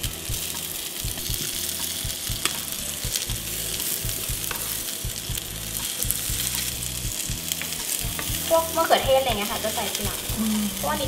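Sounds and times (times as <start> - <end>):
butter sizzling in a frying pan: 0.0 - 11.0
spatula moving food in pan: 0.4 - 11.0.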